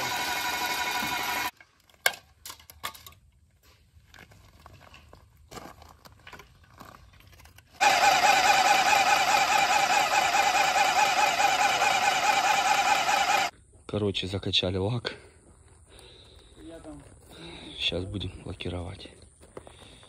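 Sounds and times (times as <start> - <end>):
paint sprayer pump motor: 0.0 - 1.5, 7.8 - 13.5.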